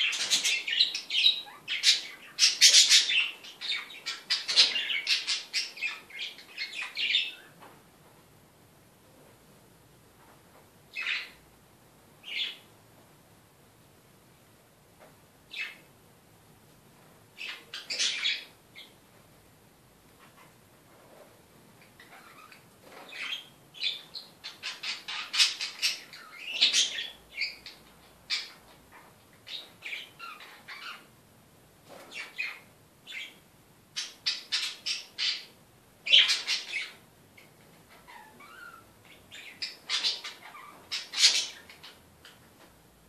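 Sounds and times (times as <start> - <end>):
budgerigars chirping: 0.0 - 7.4, 22.0 - 28.6, 36.1 - 37.0.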